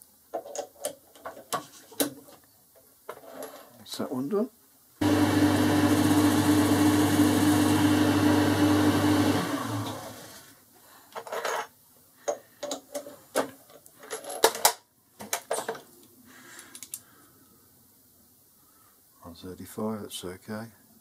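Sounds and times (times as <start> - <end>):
lathe motor humming: 5.0 - 10.4.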